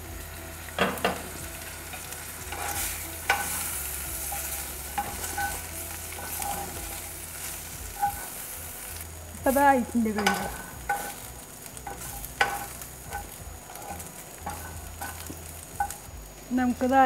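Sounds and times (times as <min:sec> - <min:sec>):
chicken sizzling in a pan: 0:00.0 - 0:17.0
spatula scraping a pan: 0:01.9 - 0:09.0, 0:10.1 - 0:16.0.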